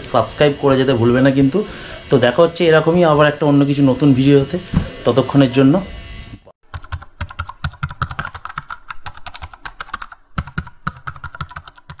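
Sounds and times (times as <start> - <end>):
keyboard typing clicks: 6.7 - 12.0.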